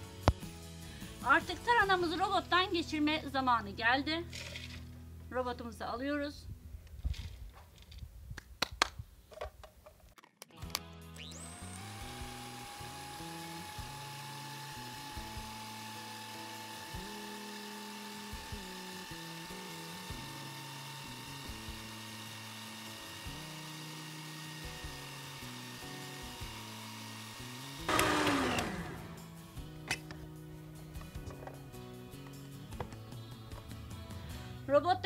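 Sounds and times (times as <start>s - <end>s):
food processor motor whining: 11.2s - 30.1s.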